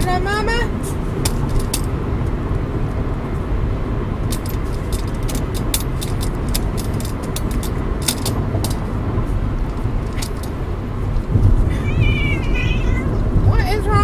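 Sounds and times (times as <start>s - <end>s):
road rumble inside moving car: 0.0s - 14.0s
quick light clicks and rattles: 4.3s - 8.9s, 9.6s - 10.6s.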